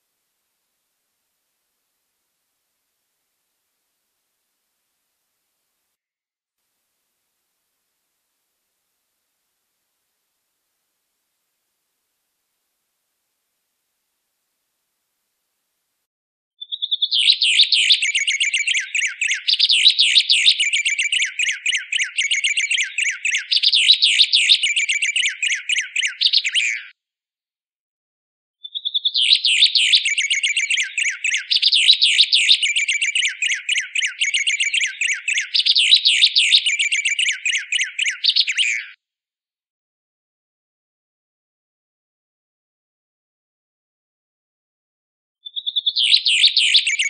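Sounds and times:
bird trilling song: 16.6s - 27.0s, 28.6s - 39.0s, 45.4s - 47.0s.

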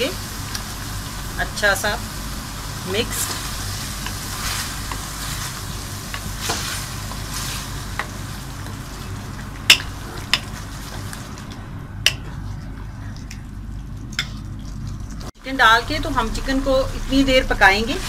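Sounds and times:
chicken sizzling: 0.0s - 11.5s, 15.2s - 18.0s.

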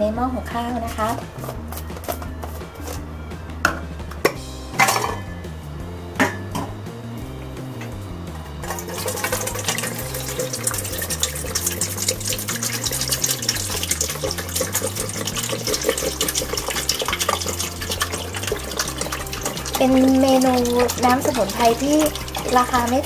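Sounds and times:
water pouring into metal pot: 8.6s - 23.0s.

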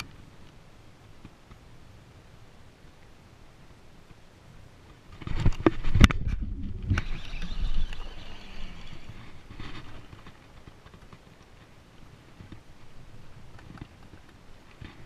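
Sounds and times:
handling noise on camera: 4.9s - 8.1s, 9.2s - 15.0s.

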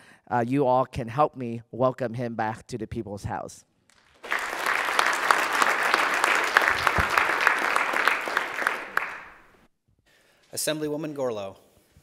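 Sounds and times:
crowd applauding: 3.9s - 9.6s.

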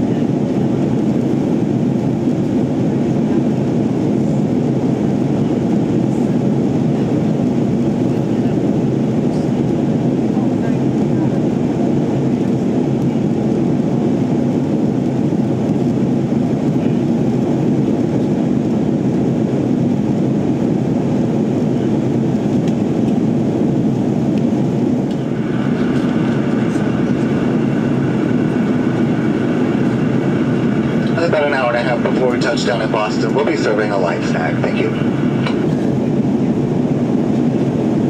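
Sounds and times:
engine and airflow rush: 0.0s - 38.0s
faint high whine: 25.0s - 37.2s.

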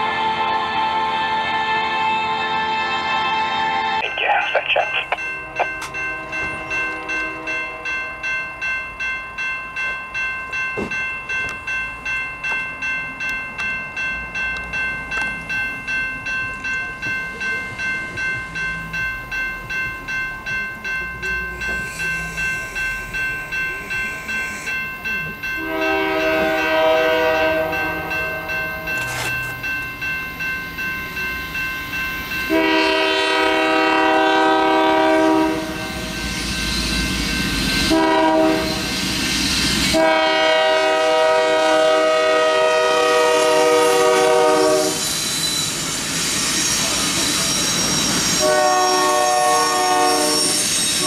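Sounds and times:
locomotive horn blowing: 0.0s - 4.0s, 25.6s - 28.5s, 32.5s - 35.9s, 37.9s - 38.9s, 39.9s - 45.0s, 48.4s - 50.6s
crossing warning bell ringing: 0.0s - 51.0s.

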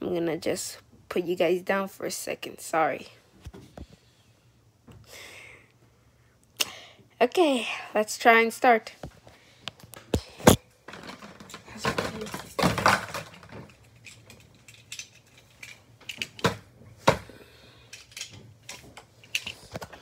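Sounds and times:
clattering of hard objects: 10.0s - 17.3s, 17.9s - 20.0s.

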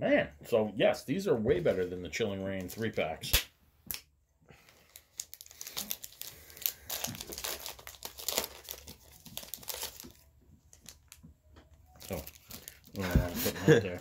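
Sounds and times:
foil wrapper crinkling: 4.7s - 11.2s, 12.0s - 14.0s.

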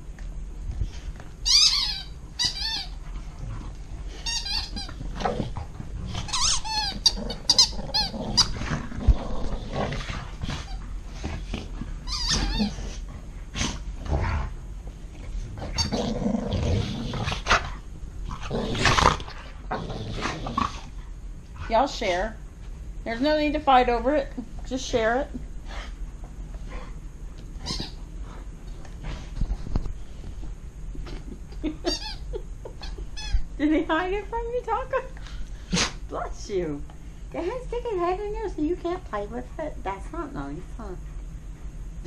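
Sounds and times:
squeaky toy squeaking: 1.5s - 2.9s, 4.2s - 4.9s, 6.3s - 7.7s, 31.9s - 32.2s
dogs growling playfully: 2.7s - 21.8s.

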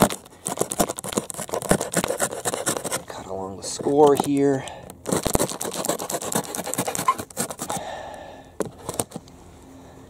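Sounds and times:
knife cutting cardboard: 0.0s - 3.1s, 5.0s - 7.9s.

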